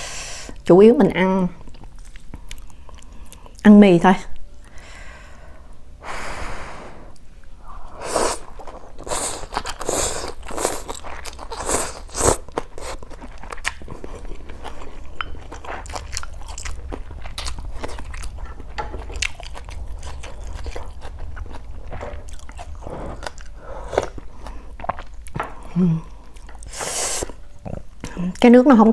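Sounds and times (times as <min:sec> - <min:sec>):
wet chewing and crunching: 0:01.6 - 0:03.6, 0:08.4 - 0:28.5
slurping noodles: 0:07.9 - 0:15.0, 0:26.5 - 0:27.4.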